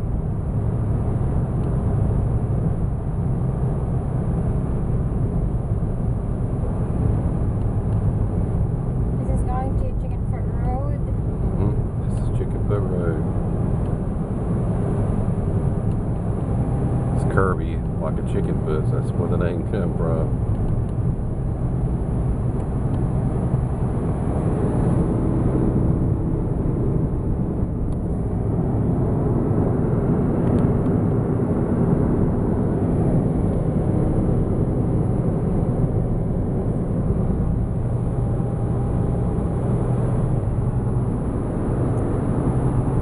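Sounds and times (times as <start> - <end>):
car engine and tyre noise: 0.0 - 43.0.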